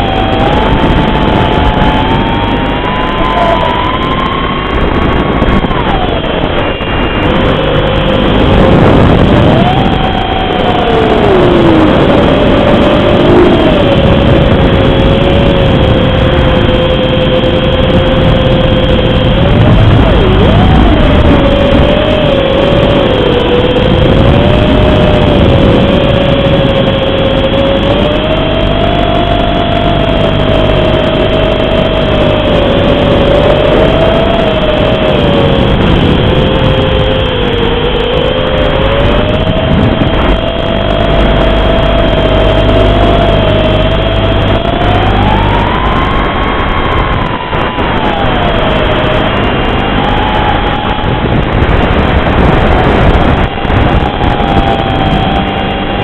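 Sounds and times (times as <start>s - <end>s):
quadcopter motors whining: 0.0s - 56.0s.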